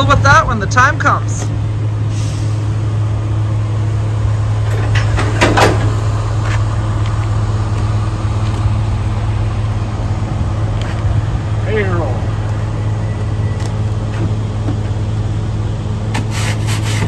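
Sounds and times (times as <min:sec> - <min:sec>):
diesel truck engine idling: 0:00.0 - 0:17.0.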